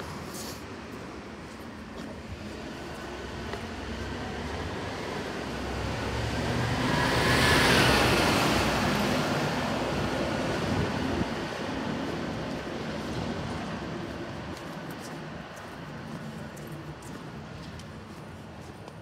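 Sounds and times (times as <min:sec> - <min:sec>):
large vehicle passing: 0:02.6 - 0:12.5.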